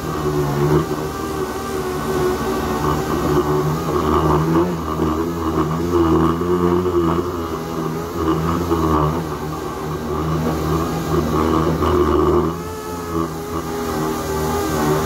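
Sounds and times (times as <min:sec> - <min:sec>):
pneumatic sander whine: 0:00.0 - 0:15.0.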